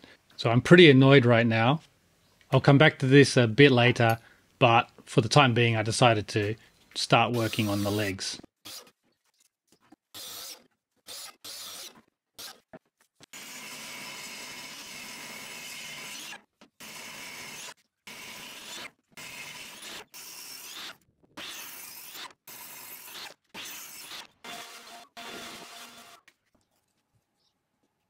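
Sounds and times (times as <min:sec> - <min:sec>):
mitre saw cutting wood: 0:07.3 - 0:08.9, 0:10.1 - 0:12.7, 0:13.3 - 0:26.3.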